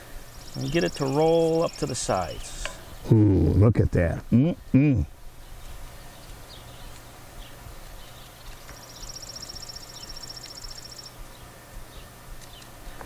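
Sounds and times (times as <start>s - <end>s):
steady low hum: 0.0s - 13.0s
faint high chirps: 0.3s - 2.6s, 8.2s - 11.2s.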